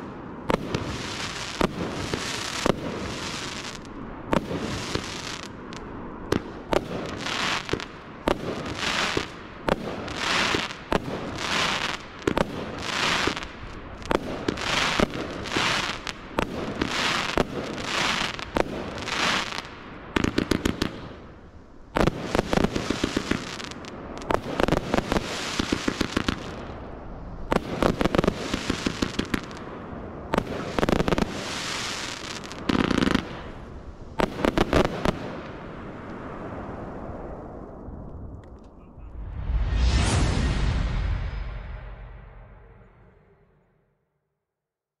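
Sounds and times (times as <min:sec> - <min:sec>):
firework barrage shots: 0:00.0 - 0:36.6
rapid firework crackling: 0:00.5 - 0:21.3, 0:22.0 - 0:29.7, 0:30.3 - 0:35.5.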